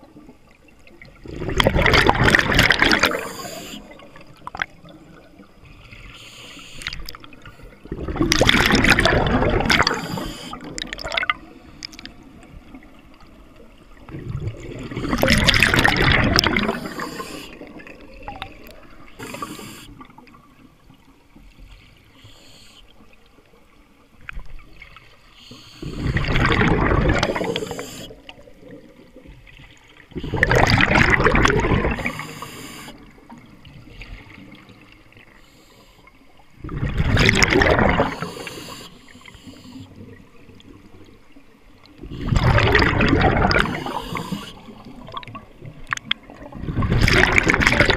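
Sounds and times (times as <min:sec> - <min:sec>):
underwater bubble bursts: 0:00.0 - 0:05.8, 0:06.8 - 0:21.0, 0:25.8 - 0:35.0, 0:36.6 - 0:38.7, 0:41.8 - 0:47.9.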